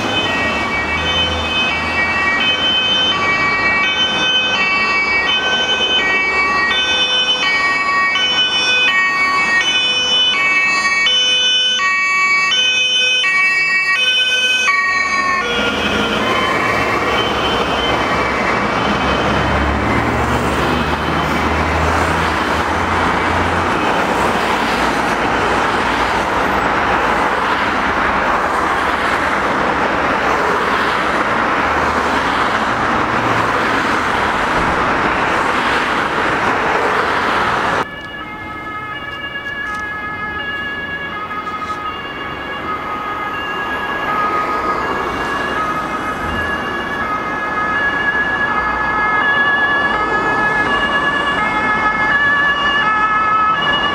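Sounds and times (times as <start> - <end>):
engine and road noise: 0.0 - 53.9
two-tone emergency sirens: 0.0 - 53.9.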